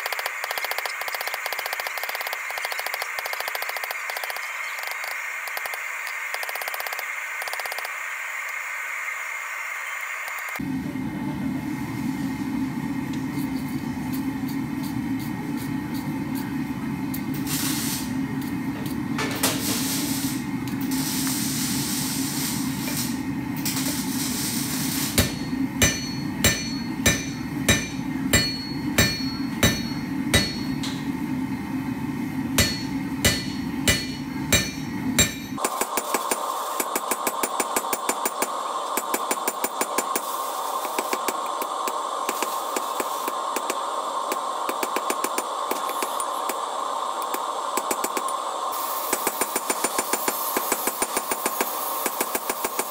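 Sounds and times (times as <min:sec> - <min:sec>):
hammer striking metal on anvil: 0:25.1 - 0:31.1, 0:32.6 - 0:35.8.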